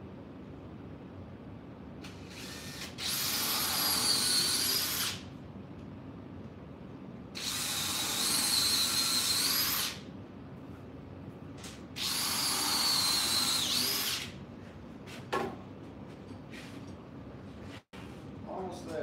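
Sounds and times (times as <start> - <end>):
cordless drill motor whine: 2.0 - 5.2, 7.4 - 10.0, 12.0 - 14.3.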